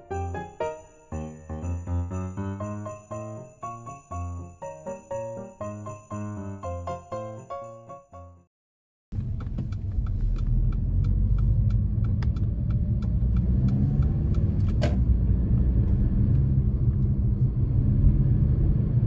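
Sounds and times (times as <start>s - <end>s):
car cabin road rumble: 9.1s - 19.0s
faint light ticks: 9.2s - 14.5s.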